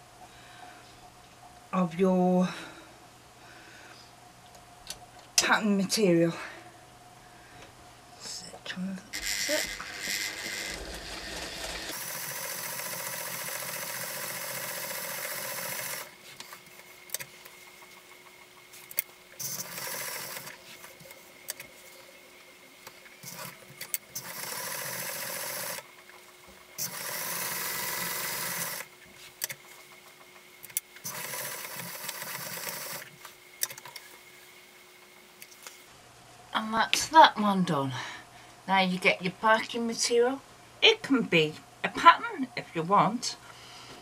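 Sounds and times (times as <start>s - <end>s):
sewing machine stitching: 9.2s - 16.1s, 19.4s - 20.6s, 23.2s - 25.8s, 26.8s - 28.9s, 31.0s - 33.1s.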